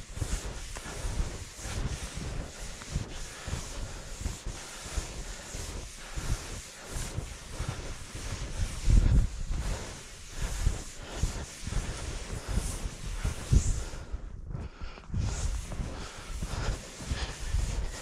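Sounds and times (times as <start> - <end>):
light rustling hiss: 0.0 - 14.1
wind buffeting microphone: 0.0 - 18.0.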